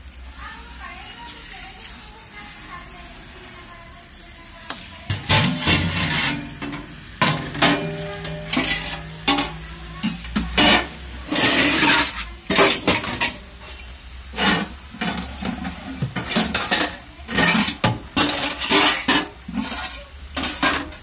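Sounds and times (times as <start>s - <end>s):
metal pots clanking: 4.7s - 21.0s.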